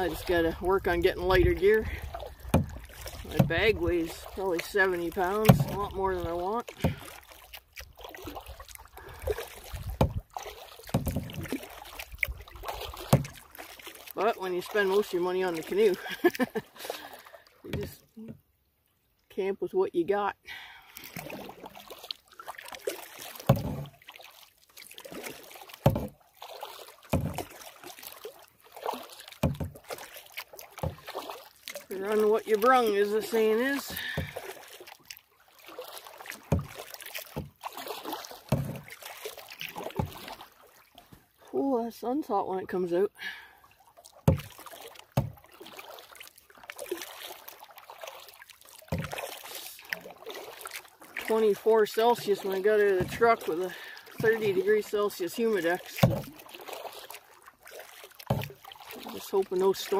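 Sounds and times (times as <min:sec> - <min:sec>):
paddle strokes through water: 0:00.0 - 0:19.3, 0:20.4 - 0:59.9
water splashing and trickling: 0:00.0 - 0:59.9
dull low thump: 0:00.8 - 0:03.9, 0:05.4 - 0:06.0, 0:09.6 - 0:13.4, 0:23.5 - 0:24.0, 0:45.1 - 0:45.4.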